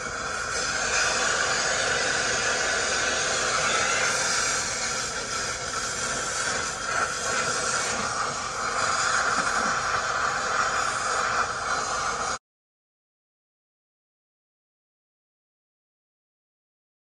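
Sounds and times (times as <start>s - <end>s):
cutting torch flame hissing: 0.0s - 12.4s.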